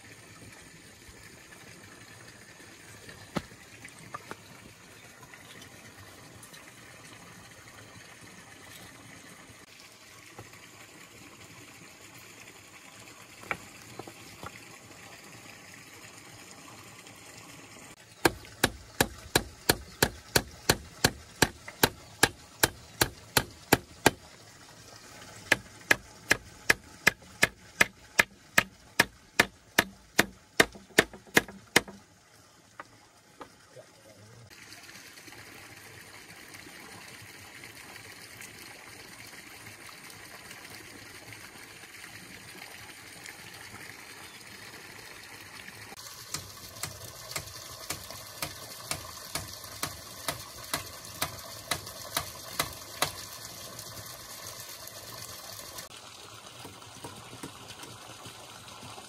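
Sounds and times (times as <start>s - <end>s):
faint stream running: 0.0s - 59.0s
hand tool striking wood: 3.3s - 3.5s, 18.2s - 24.2s, 25.5s - 32.0s.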